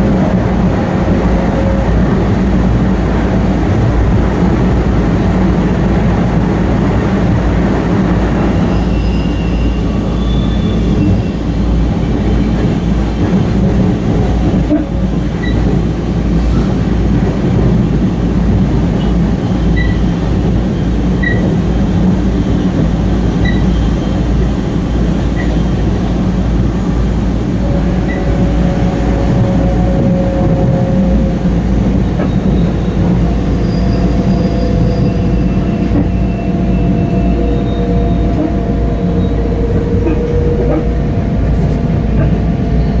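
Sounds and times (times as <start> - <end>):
train wheels rumbling on rails: 0.0 - 43.0
train wheels squealing: 8.5 - 11.5, 15.4 - 15.6, 19.4 - 20.2, 20.8 - 21.5, 23.4 - 24.3, 32.0 - 40.8.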